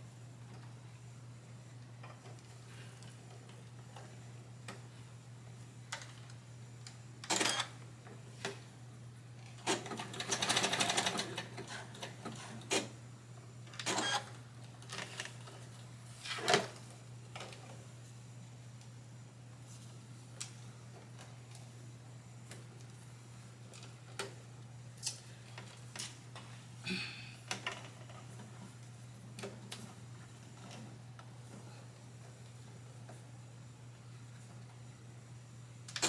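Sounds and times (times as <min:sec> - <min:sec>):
sewing machine stitching: 0:09.6 - 0:12.9.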